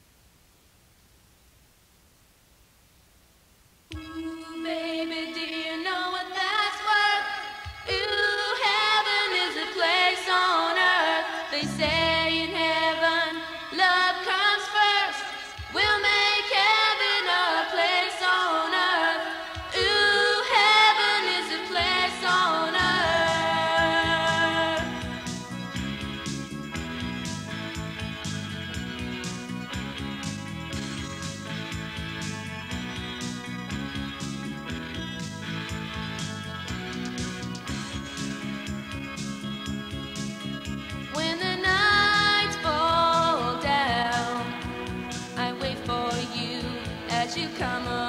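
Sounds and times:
backing vocals: 3.9s - 25.4s
lead voice singing: 4.0s - 25.2s
bass line: 11.6s - 12.8s, 21.8s - 48.0s.

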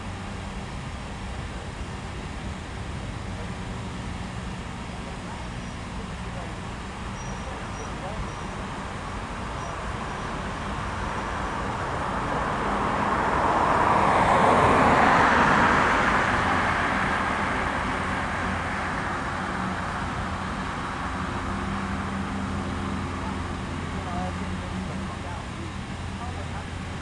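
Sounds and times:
steady low engine hum: 0.0s - 27.0s
vehicle passing by: 7.4s - 27.0s.

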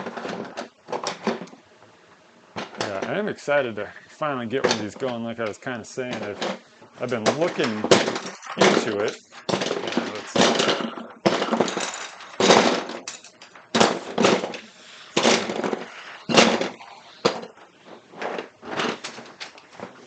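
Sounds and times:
plastic parts clattering into box: 0.0s - 1.6s, 6.1s - 20.0s.

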